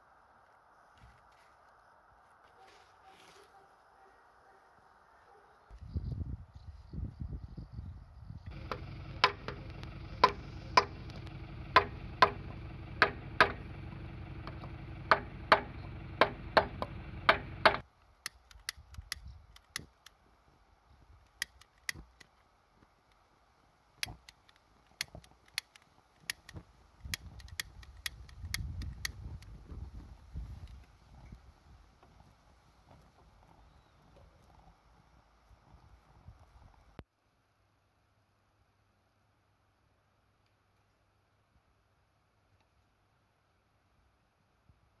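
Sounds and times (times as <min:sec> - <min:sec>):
wooden post knocking on metal: 0:09.2 - 0:09.6, 0:10.2 - 0:11.0, 0:11.8 - 0:12.4, 0:13.0 - 0:13.6, 0:15.1 - 0:17.8
utility lighter clicking: 0:18.2 - 0:20.2, 0:21.3 - 0:22.3, 0:24.0 - 0:29.5.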